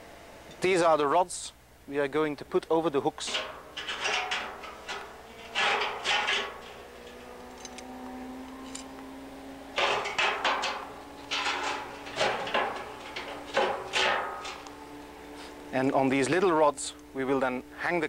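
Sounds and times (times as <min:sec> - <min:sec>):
iron rods clanking on metal: 0:03.0 - 0:09.0, 0:09.6 - 0:15.6
steel drum ringing: 0:03.2 - 0:16.8.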